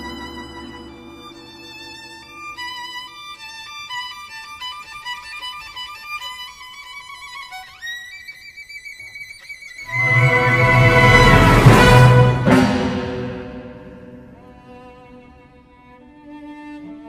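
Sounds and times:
violin playing slow melody: 9.8s - 12.6s.

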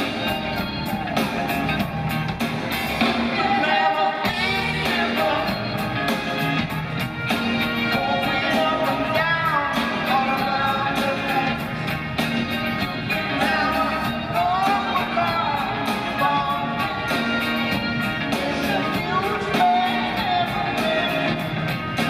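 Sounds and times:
live rock band: 0.0s - 22.0s
man singing: 3.0s - 6.2s, 7.7s - 12.0s, 12.7s - 22.0s.

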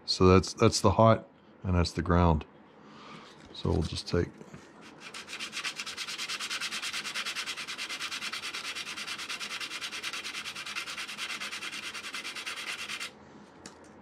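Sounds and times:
sandpaper sanding metal: 4.9s - 13.1s.

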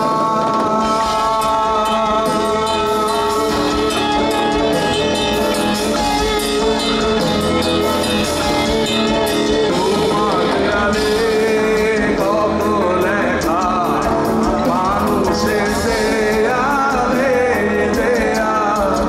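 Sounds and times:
bending guitar melody: 0.0s - 19.0s
heavy metal band playing: 0.0s - 19.0s.

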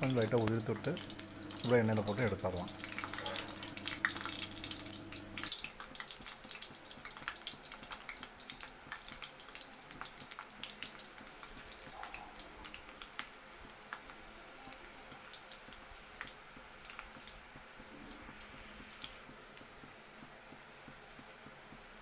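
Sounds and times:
low hum: 0.0s - 5.6s
batter deep-frying in hot oil: 0.0s - 22.0s.

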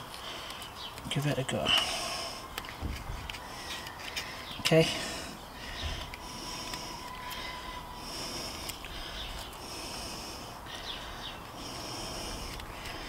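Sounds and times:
knife shaving a stick: 0.0s - 4.6s.

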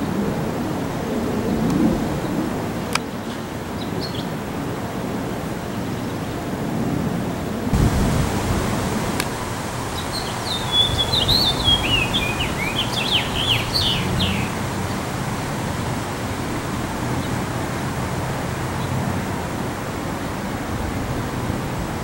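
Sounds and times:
steady background hiss: 7.3s - 22.0s
finch singing warbled song: 9.8s - 15.1s.

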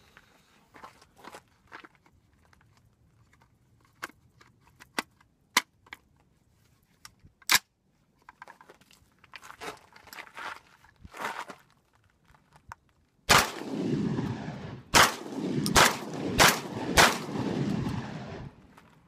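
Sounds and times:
shotgun metallic clicks and clacks: 15.0s - 18.1s.

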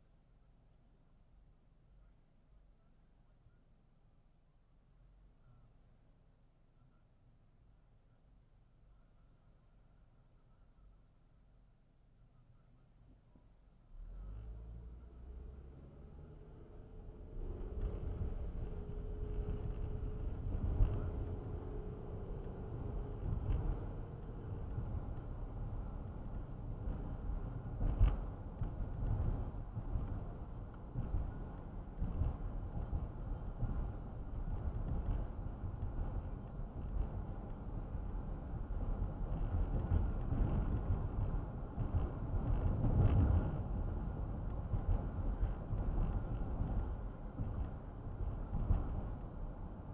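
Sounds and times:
road and engine rumble: 12.4s - 49.9s.

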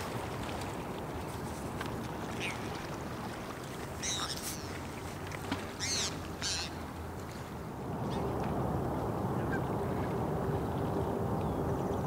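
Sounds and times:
highway traffic rumble: 4.6s - 12.0s.

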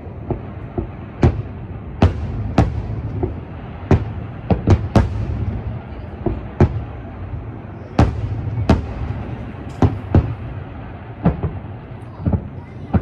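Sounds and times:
firework shells booming: 0.0s - 13.0s.

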